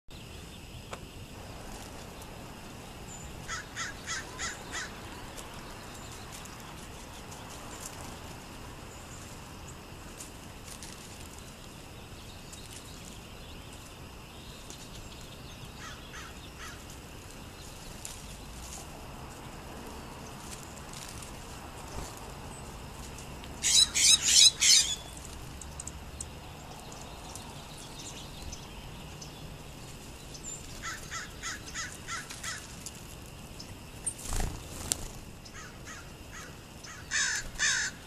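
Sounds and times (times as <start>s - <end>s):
small birds chirping: 0.1s - 38.0s
steady outdoor hiss: 0.1s - 38.0s
crow calling: 3.4s - 5.0s, 15.8s - 16.9s, 30.8s - 32.7s, 35.5s - 38.0s.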